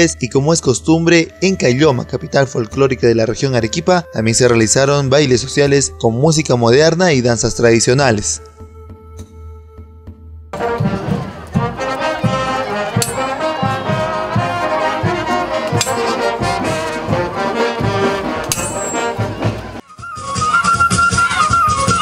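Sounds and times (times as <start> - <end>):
steady drum beat: 9.9 - 22.0
trumpets and trombones: 10.6 - 19.8.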